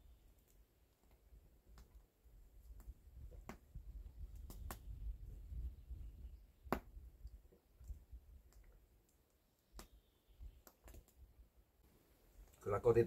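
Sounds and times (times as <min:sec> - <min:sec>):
wood fire crackling and popping: 0:00.3 - 0:05.7, 0:06.6 - 0:10.0, 0:10.6 - 0:11.2.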